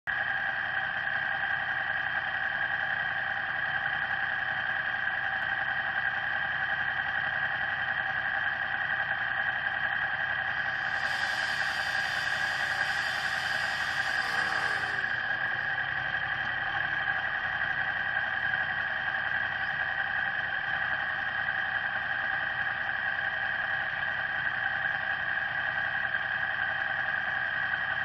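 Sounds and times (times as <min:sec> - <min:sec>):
hiss: 0:10.6 - 0:15.8.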